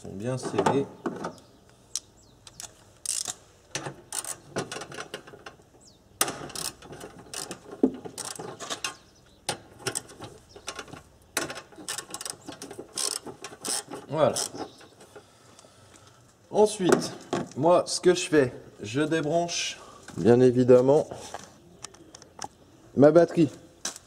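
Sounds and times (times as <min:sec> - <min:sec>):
socket ratchet clicking: 0:01.9 - 0:03.4, 0:11.8 - 0:14.6.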